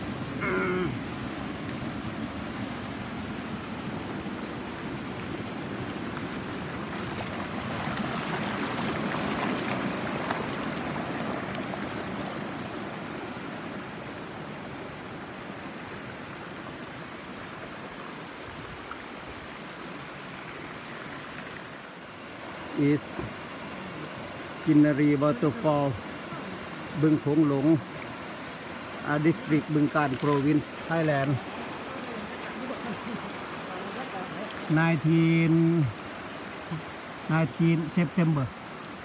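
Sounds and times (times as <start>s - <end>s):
waterfall rushing over rock: 0.0s - 39.0s.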